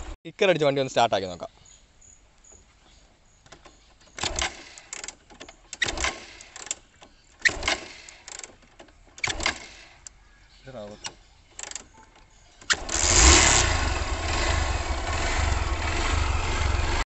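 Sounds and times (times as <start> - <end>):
motorcycle engine kick-start bursts: 3.5 - 6.8, 7.4 - 10.1, 12.6 - 17.0.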